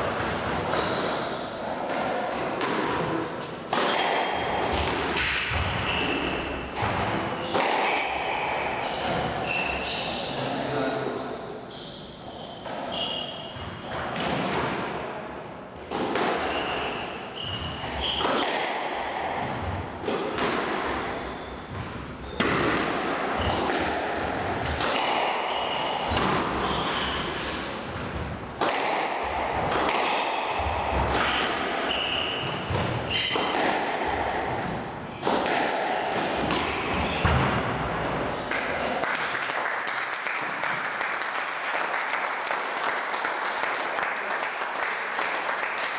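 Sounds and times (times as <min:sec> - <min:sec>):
rackets striking squash ball: 0:00.0 - 0:10.6, 0:11.3 - 0:45.9
shoes squeaking on wooden floor: 0:05.5 - 0:06.6, 0:08.8 - 0:10.5, 0:36.6 - 0:38.5.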